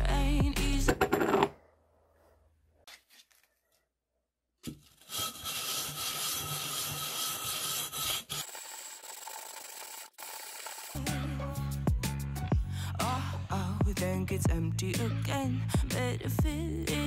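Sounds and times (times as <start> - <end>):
glass scraping on sandpaper: 5.0 - 8.5.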